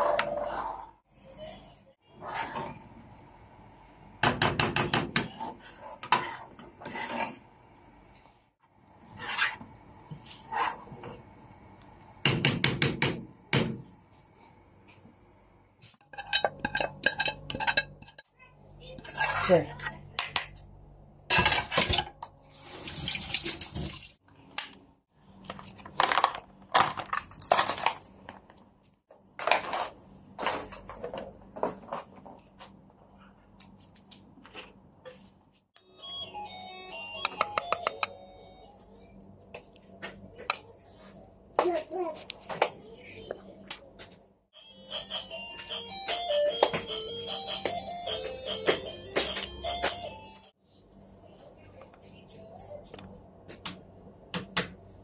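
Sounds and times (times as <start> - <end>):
spoon scraping in a saucepan: 0.0 - 2.9, 5.3 - 7.5, 9.1 - 11.2, 16.0 - 18.3, 18.9 - 20.0
utensils clinking against pot: 16.0 - 18.3.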